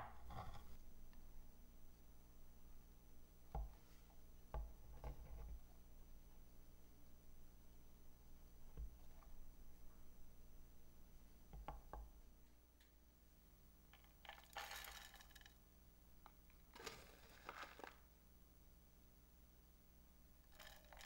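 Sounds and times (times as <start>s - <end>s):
granules trickling into container: 14.2s - 15.5s, 20.5s - 21.0s.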